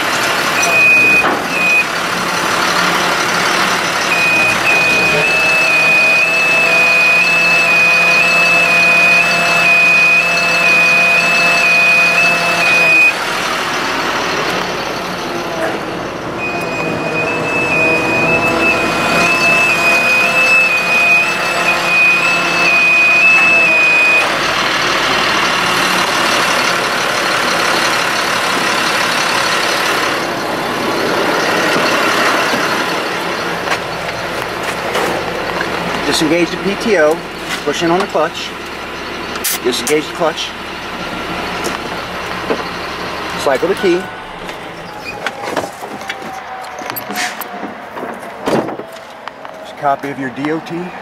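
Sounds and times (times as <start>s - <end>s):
warning alarm beeping: 0.0s - 34.4s
truck engine running: 0.0s - 51.0s.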